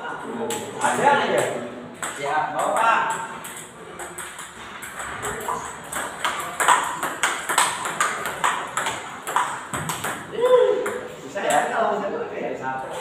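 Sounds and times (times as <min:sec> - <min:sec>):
table tennis ball clicking off rackets: 0:01.4 - 0:10.3
ball bouncing on table: 0:01.4 - 0:11.1.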